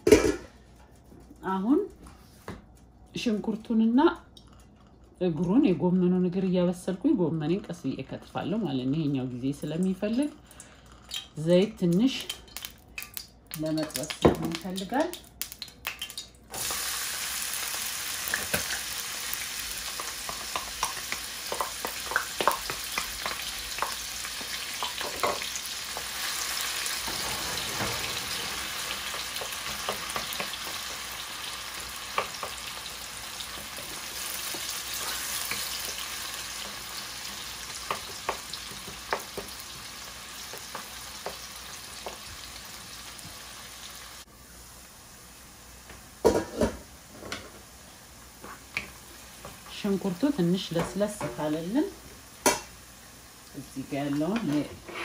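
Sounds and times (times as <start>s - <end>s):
onion sizzling in hot oil: 12.1s - 55.0s
wooden spoon tapping a pan: 37.8s - 39.6s.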